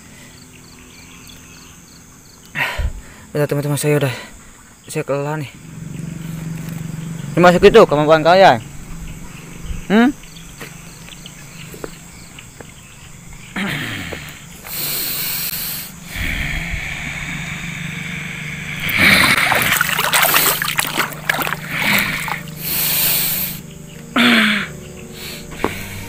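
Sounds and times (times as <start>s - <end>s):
man breathing heavily: 2.5s - 3.4s, 13.5s - 26.0s
water splashing: 18.8s - 23.4s.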